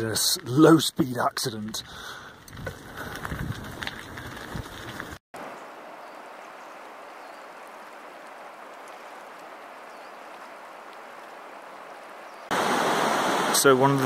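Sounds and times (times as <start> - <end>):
river rushing over rocks: 12.5 - 13.8.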